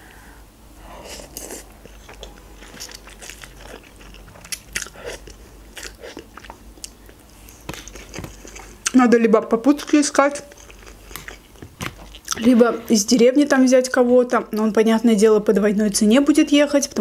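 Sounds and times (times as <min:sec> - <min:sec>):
person chewing and slurping noodles: 0:01.0 - 0:08.9.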